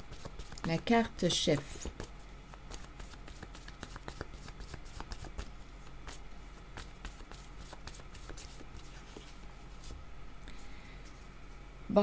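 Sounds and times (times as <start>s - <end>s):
cards being shuffled: 0.1s - 0.8s, 1.5s - 10.0s.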